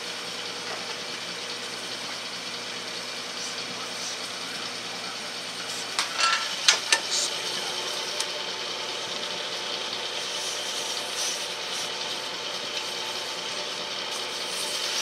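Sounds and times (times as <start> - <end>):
metal lathe running: 0.0 - 15.0.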